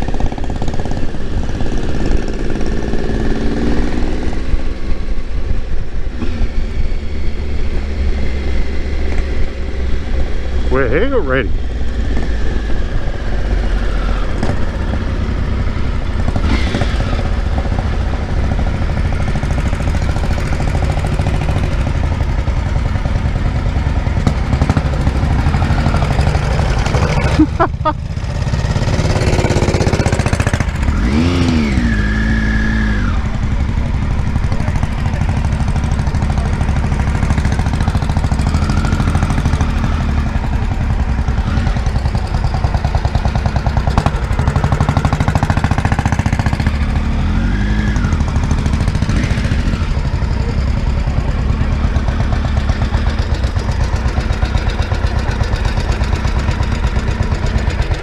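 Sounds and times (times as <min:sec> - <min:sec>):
another engine rising and falling: 0:00.0 - 0:05.3, 0:06.1 - 0:58.0
motorcycle engine running: 0:00.0 - 0:58.0.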